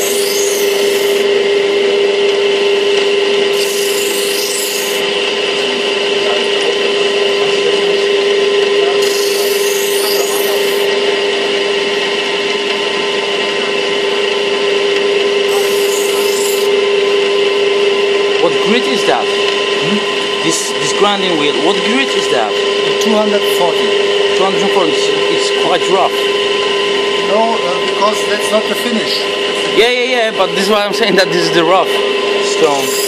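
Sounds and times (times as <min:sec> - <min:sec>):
knife grinding on grinding wheel: 0:00.0 - 0:01.5, 0:02.2 - 0:05.6, 0:09.0 - 0:11.3, 0:15.4 - 0:17.4, 0:30.4 - 0:33.0
machine hum: 0:00.0 - 0:33.0.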